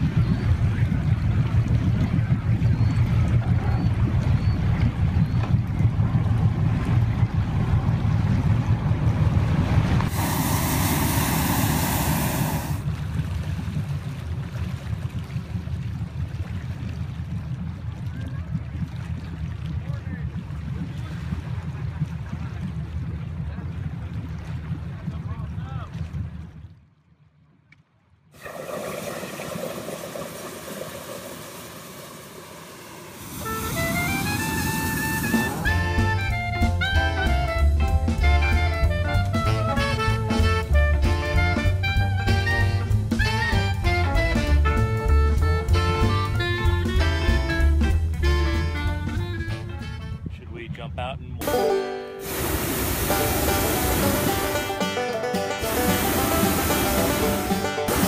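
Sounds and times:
steady low rumble: 0.0 - 26.9, 29.6 - 43.1
propane burner roaring hiss: 10.0 - 12.8, 28.4 - 35.9, 52.2 - 54.8, 55.6 - 58.0.

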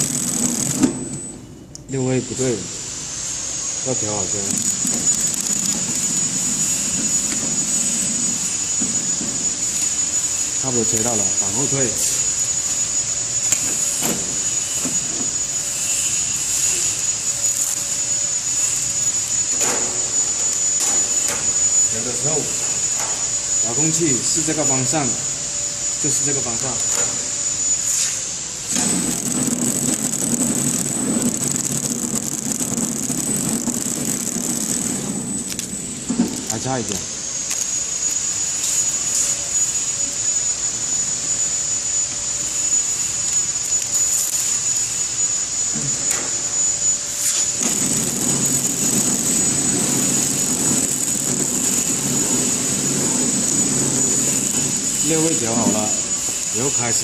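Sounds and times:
packing machine mechanical hum: 0.0 - 2.2, 2.9 - 57.0
thin high whine: 0.0 - 57.0
packing machine mechanical rumble: 4.2 - 13.0, 28.7 - 37.0, 47.5 - 56.6.

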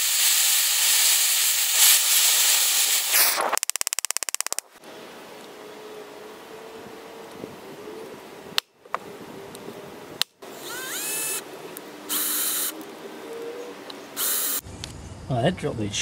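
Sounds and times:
cordless drill whining: 10.6 - 11.4, 12.1 - 12.8, 14.2 - 14.6.

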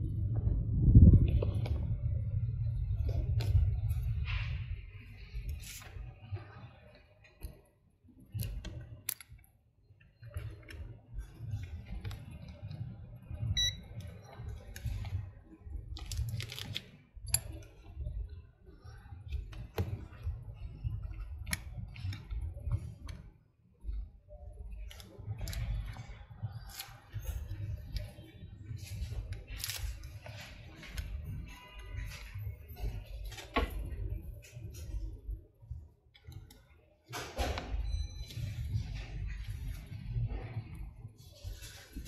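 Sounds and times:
steady low rumble: 0.0 - 7.4, 10.2 - 36.1
high beep: 13.6 - 13.8.

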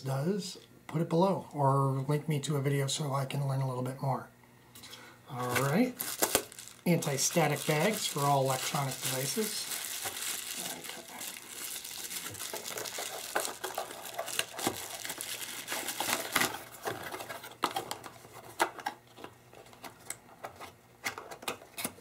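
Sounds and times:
plastic bag crinkling: 5.4 - 18.2.

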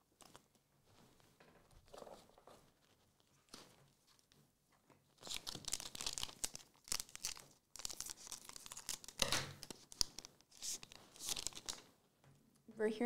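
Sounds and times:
foil wrapper tearing and crinkling: 5.2 - 11.8.

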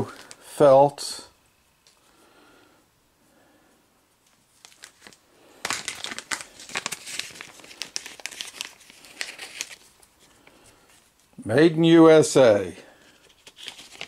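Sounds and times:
plastic bag crinkling: 0.0 - 0.5, 4.5 - 11.1, 13.0 - 14.0.

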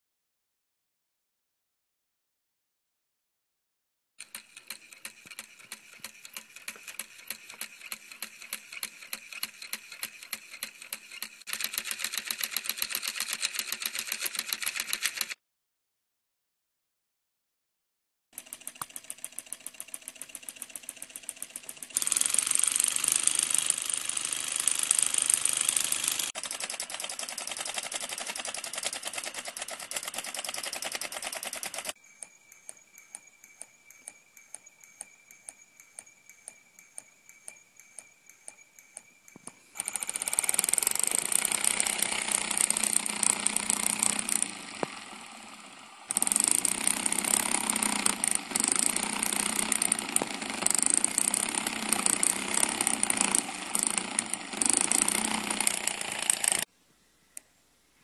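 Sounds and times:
solenoid engine clattering: 4.2 - 15.4, 18.4 - 32.0, 39.7 - 56.7.

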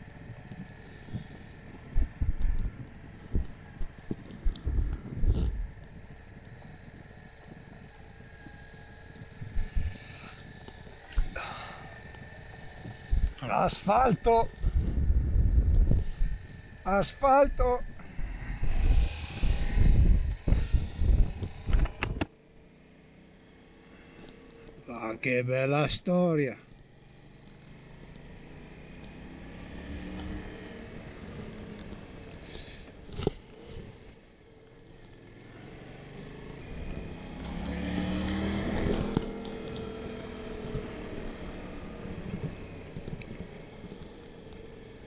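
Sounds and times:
faint steady hum: 0.0 - 22.6
motorcycle engine rumble: 0.0 - 25.0, 26.6 - 45.0
wind buffeting on microphone: 0.2 - 10.7, 14.4 - 16.9, 17.8 - 22.3.

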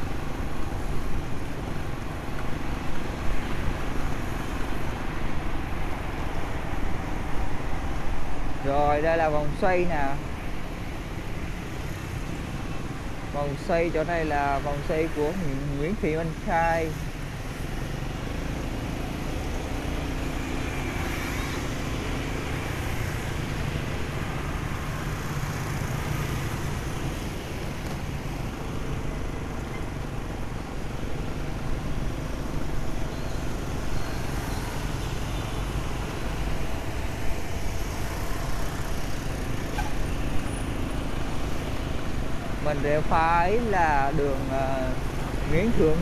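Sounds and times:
passing scooters and cars: 0.0 - 46.0.

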